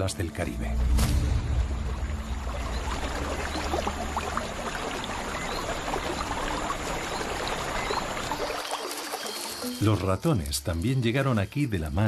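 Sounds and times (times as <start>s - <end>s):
frogs and insects calling: 1.6s - 10.8s.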